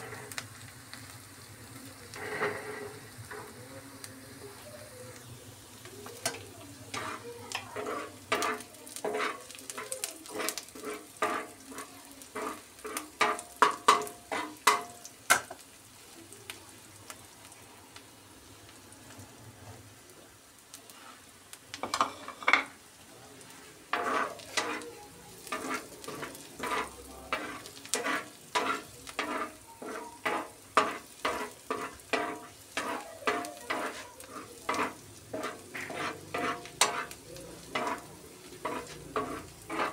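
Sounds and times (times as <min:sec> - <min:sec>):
metal spatula scraping griddle: 0:00.0 - 0:00.4, 0:01.9 - 0:03.8, 0:06.0 - 0:15.6, 0:21.8 - 0:22.8, 0:23.4 - 0:39.9
onions sizzling: 0:00.0 - 0:39.9.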